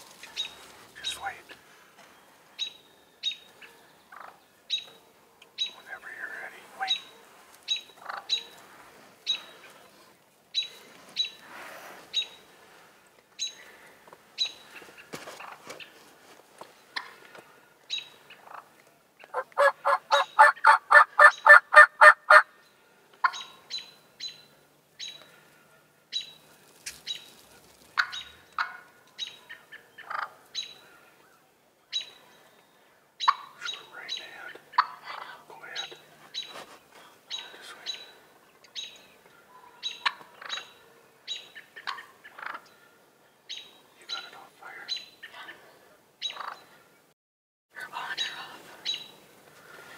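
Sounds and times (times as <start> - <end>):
turkey sharp calls: 2.6 - 4.9, 7.7 - 8.6, 17.9 - 22.5, 28.0 - 30.8, 33.2 - 36.6, 39.8 - 40.7, 41.3 - 42.8, 46.2 - 46.8
turkey gobbling: 8.0 - 8.4, 19.3 - 22.5, 28.0 - 28.8, 30.0 - 30.3, 34.8 - 35.2, 41.6 - 42.7, 46.3 - 46.6.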